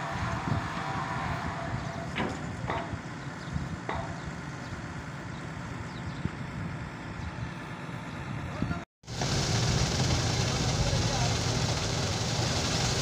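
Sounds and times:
diesel engine running: 0.0 - 13.0
sharp knocks: 3.8 - 4.3
machine whine: 9.1 - 13.0.

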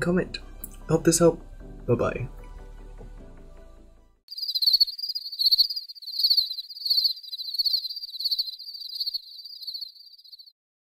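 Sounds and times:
crickets chirping: 4.3 - 10.5.

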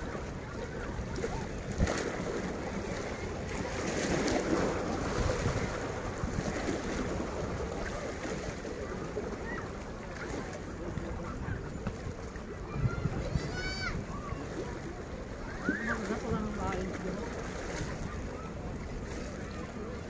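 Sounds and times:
wind noise on microphone: 0.0 - 8.6, 10.3 - 14.9
sea waves washing on shore: 0.0 - 20.0.

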